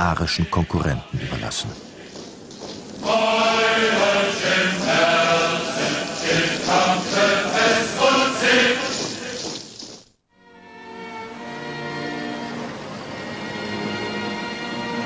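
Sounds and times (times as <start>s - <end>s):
crowd chanting: 0.1s - 9.4s.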